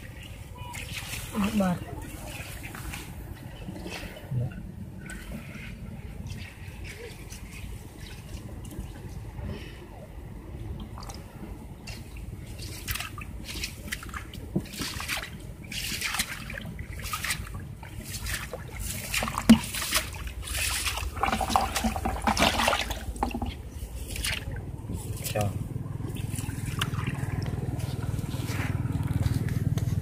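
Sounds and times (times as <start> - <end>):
fish splashing in water: 0.0 - 4.3, 10.8 - 29.7
sharp knock on bucket: 21.2 - 23.6.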